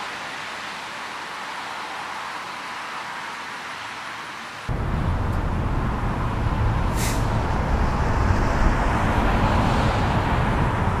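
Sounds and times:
highway traffic passing: 0.0s - 11.0s
brief hiss: 6.9s - 7.3s.

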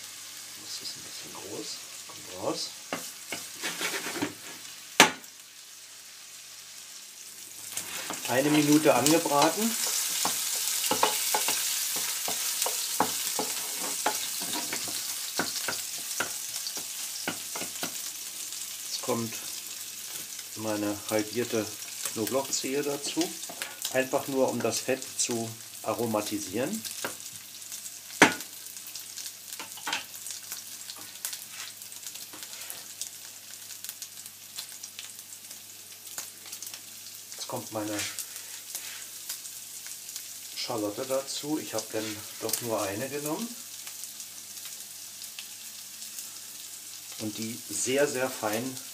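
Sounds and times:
bacon sizzling in frying pan: 0.0s - 48.9s
spatula scraping a pan: 2.9s - 4.7s, 7.7s - 18.0s, 30.9s - 32.9s, 37.9s - 39.2s.

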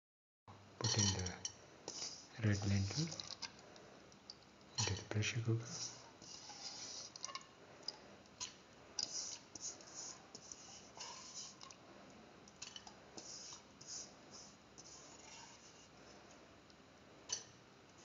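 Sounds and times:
lentils rustling in metal pot: 0.8s - 3.5s.

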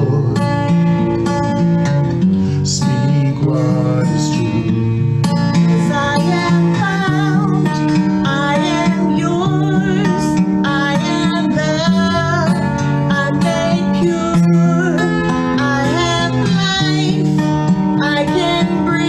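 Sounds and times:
acoustic guitar: 0.0s - 19.0s
woman singing a worship song: 5.7s - 19.0s.

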